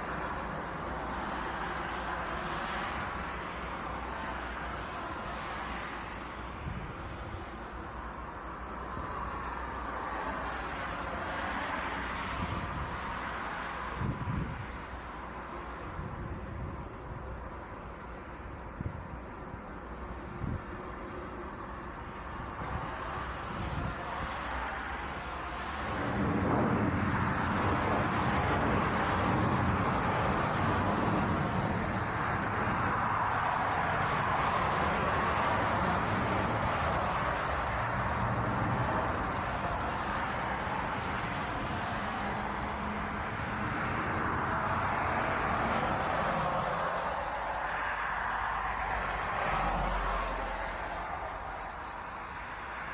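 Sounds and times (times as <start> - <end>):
wind rumbling on microphone: 0.0 - 52.9
jet engines roaring: 23.8 - 41.6.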